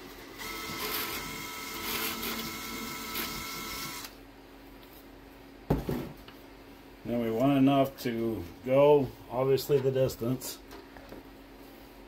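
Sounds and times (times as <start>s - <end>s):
cordless drill whining: 0.4s - 4.1s.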